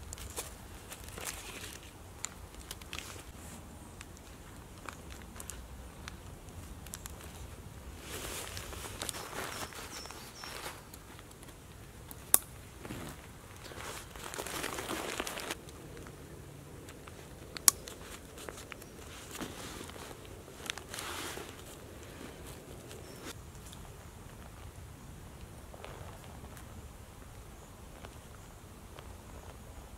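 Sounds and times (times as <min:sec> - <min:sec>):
nylon fabric and straps rustling: 0:00.2 - 0:11.6, 0:12.7 - 0:15.6, 0:17.0 - 0:23.4.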